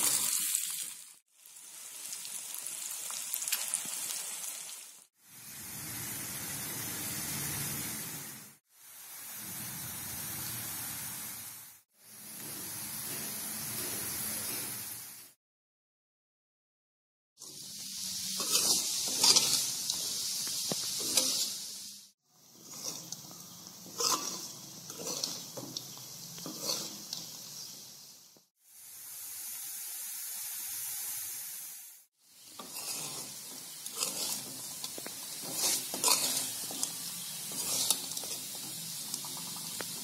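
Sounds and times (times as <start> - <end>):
potato slices sizzling in oil: 0.0 - 15.4, 17.4 - 40.0
ladle scraping metal pan: 18.4 - 21.6, 22.5 - 27.4, 32.5 - 39.8.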